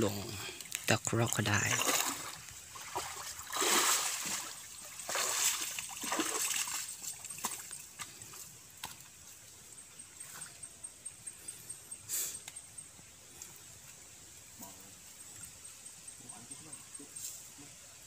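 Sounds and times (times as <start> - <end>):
water splashing from wading: 1.1 - 8.0
faint ticks: 12.3 - 13.6.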